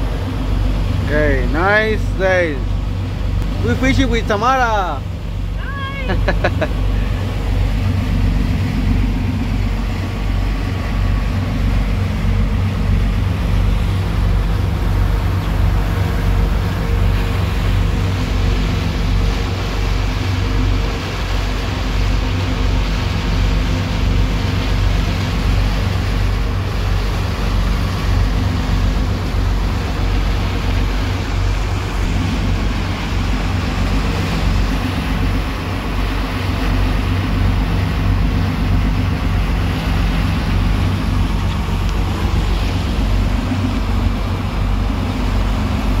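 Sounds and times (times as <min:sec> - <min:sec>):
boat engine droning: 0:00.0 - 0:46.0
churning water rushing: 0:00.0 - 0:46.0.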